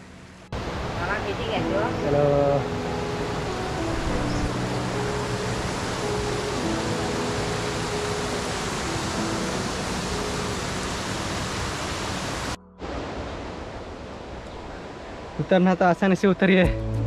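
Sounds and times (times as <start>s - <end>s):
rushing water: 0.0s - 17.0s
faint music: 1.0s - 10.9s.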